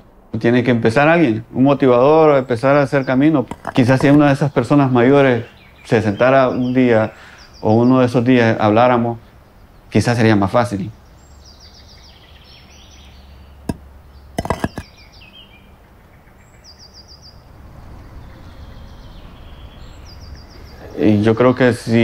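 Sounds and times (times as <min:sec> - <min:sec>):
low street rumble: 0:00.0 - 0:22.0
birds chirping: 0:01.0 - 0:22.0
brief knock: 0:03.5 - 0:04.2, 0:14.4 - 0:14.9.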